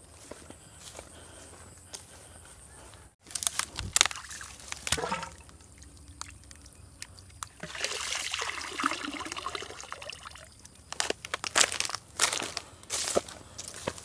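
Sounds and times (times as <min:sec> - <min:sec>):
water trickling and pouring from tube: 0:04.1 - 0:10.6.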